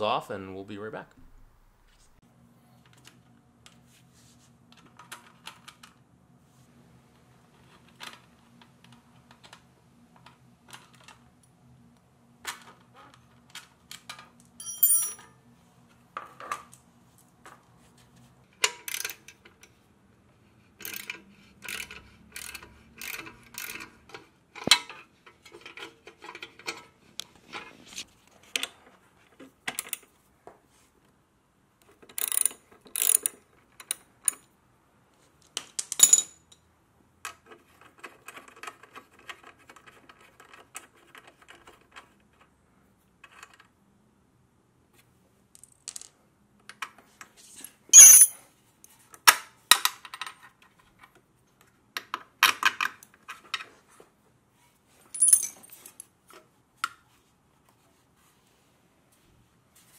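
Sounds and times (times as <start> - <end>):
metallic clinks of loose bolts: 14.6 - 15.3, 48.0 - 48.4
socket ratchet clicking: 32.2 - 33.4.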